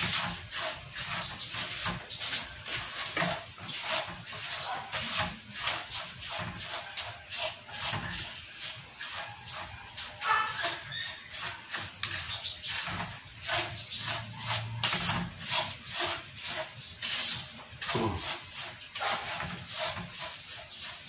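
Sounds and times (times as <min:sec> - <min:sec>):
wooden spatula scraping rock salt: 0:00.0 - 0:21.0.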